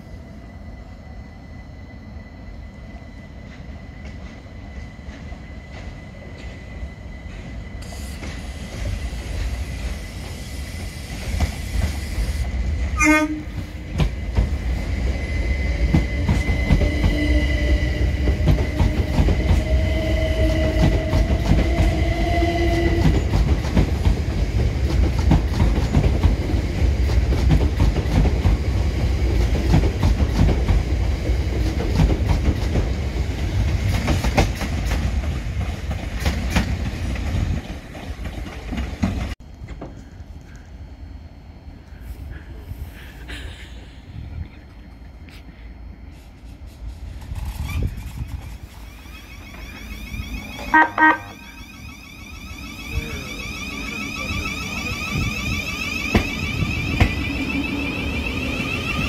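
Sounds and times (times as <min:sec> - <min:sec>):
train wheels rumbling on rail: 0:00.0 - 0:59.0
train horn toot: 0:13.0 - 0:13.7, 0:50.4 - 0:51.7
traction motor whine: 0:48.6 - 0:59.0.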